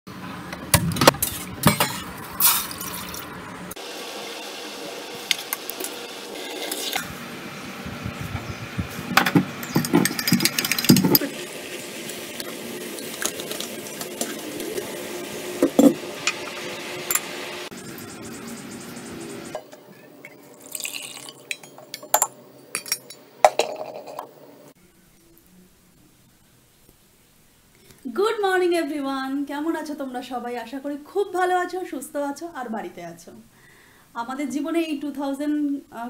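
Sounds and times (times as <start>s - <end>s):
steel pans and utensils clinking: 1.0s - 3.2s, 9.2s - 11.4s, 21.2s - 24.2s
gas burner hissing: 3.7s - 19.6s.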